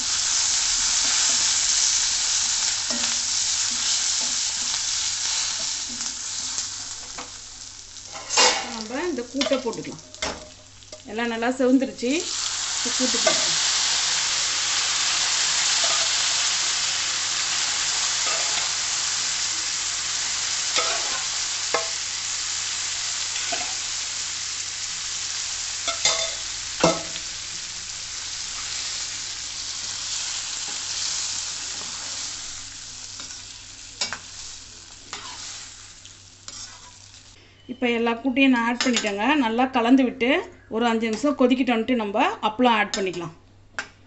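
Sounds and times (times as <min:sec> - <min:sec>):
food sizzling in hot oil: 0:00.0 - 0:37.4.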